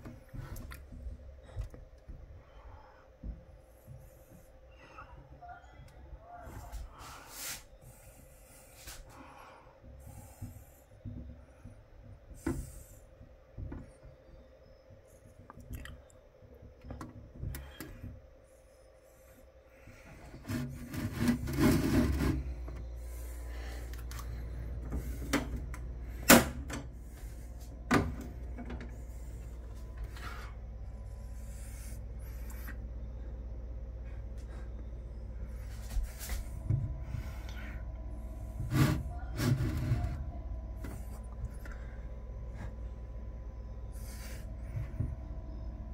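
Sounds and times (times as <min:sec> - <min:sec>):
plastic container handling scrapes: 0:20.4 - 0:23.4.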